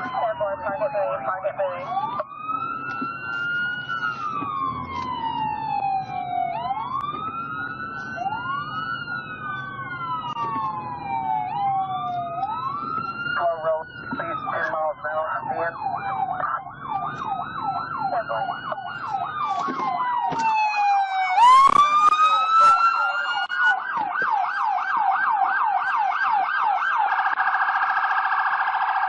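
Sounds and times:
police siren wail: 0.0 - 29.0
police siren yelp: 0.0 - 29.0.

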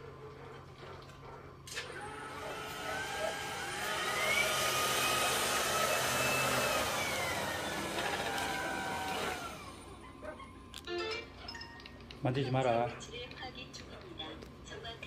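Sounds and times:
robot vacuum fan whine: 1.7 - 10.8.

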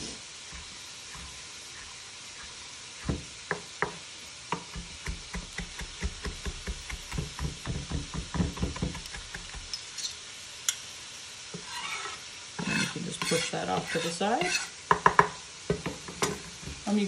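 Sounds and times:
food frying in a pan: 0.0 - 17.0
knife chopping on wooden board: 0.6 - 9.8.

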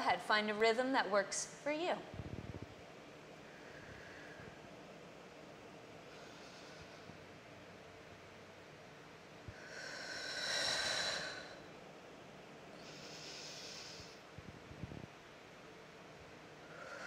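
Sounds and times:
person breathing deeply: 3.4 - 4.6, 12.8 - 14.3, 16.6 - 17.0.

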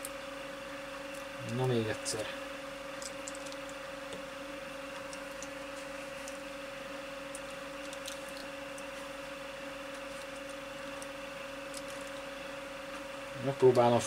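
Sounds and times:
low electrical hum: 0.0 - 14.0.

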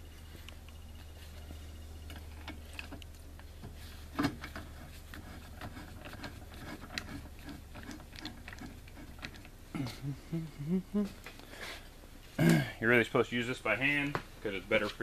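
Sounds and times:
low hum: 0.0 - 4.9, 6.8 - 11.4.

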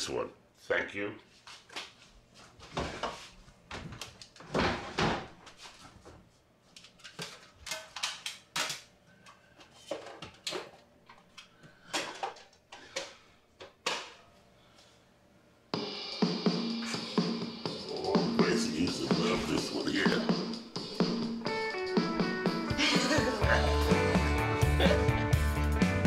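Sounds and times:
objects knocking and clattering: 2.7 - 5.4, 6.9 - 8.9, 9.6 - 14.2
music with a beat: 15.8 - 26.0.

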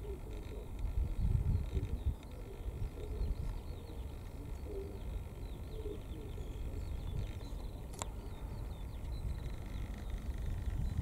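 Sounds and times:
pigeon cooing: 0.0 - 0.7, 1.7 - 5.1, 5.7 - 6.4
small birds chirping: 0.0 - 11.0
steady low rumble: 0.0 - 11.0.

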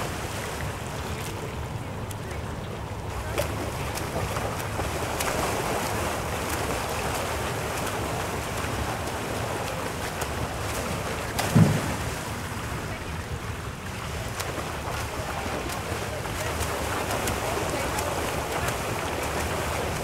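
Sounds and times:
swimmers splashing water: 0.0 - 20.0
low thump: 11.4 - 12.3.

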